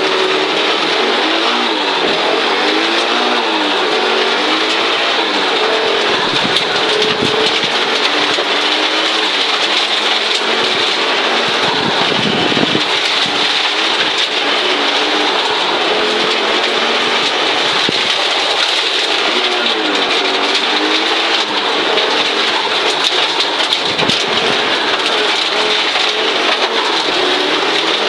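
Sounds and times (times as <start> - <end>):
rally car engine revving: 0.0 - 28.0.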